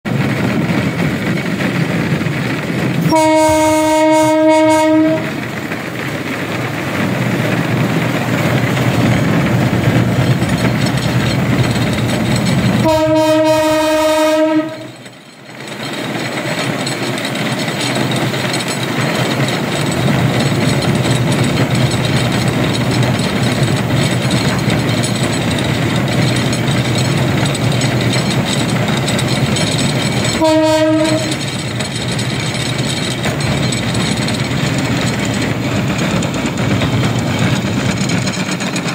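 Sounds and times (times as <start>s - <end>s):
railcart running on rails: 0.0s - 38.9s
railcart horn blast: 3.0s - 5.4s, 12.8s - 15.0s, 30.4s - 31.4s.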